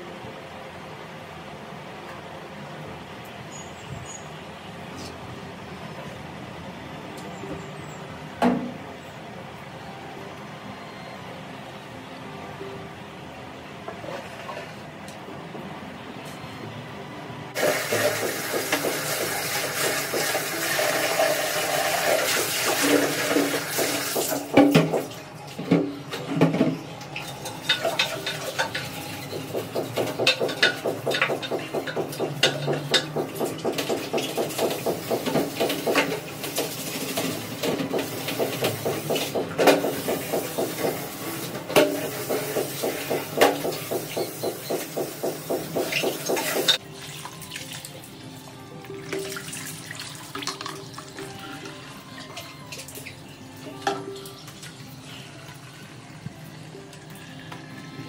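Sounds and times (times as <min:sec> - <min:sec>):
water running: 0:17.6 - 0:25.0.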